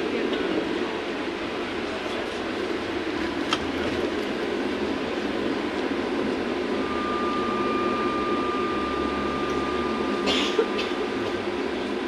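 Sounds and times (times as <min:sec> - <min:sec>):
trolleybus cabin rumble: 0:00.0 - 0:12.0
steady high tone: 0:06.7 - 0:11.6.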